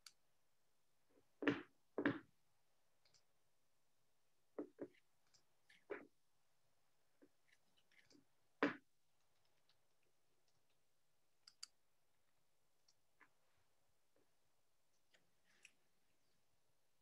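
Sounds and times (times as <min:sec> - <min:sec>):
faint clicks: 0:11.4 - 0:11.8.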